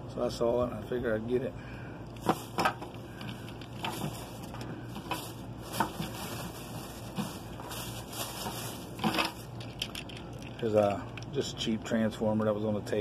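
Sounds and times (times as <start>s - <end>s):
toys rustling and clicking: 2.2s - 11.4s.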